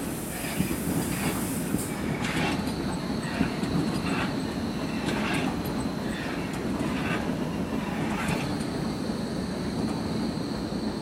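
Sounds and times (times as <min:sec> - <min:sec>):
electric train rolling past: 0:00.0 - 0:11.0
train wheel clicks: 0:00.4 - 0:08.9.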